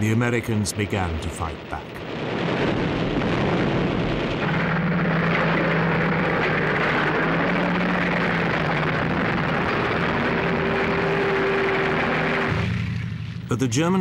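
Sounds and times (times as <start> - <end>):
heavy vehicle engine rumbling: 0.0 - 14.0.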